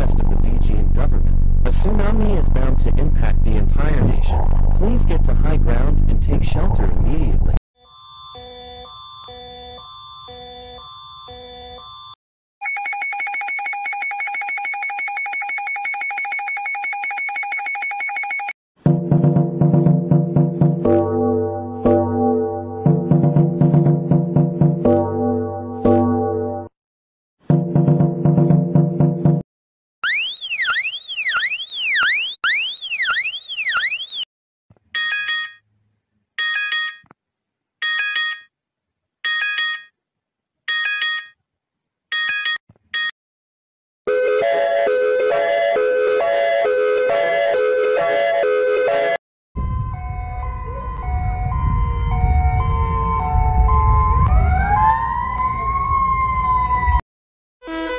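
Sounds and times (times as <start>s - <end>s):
two-tone pulsing alarm: 7.8s - 18.6s, 30.0s - 34.3s, 44.1s - 54.3s, 57.6s - 57.9s.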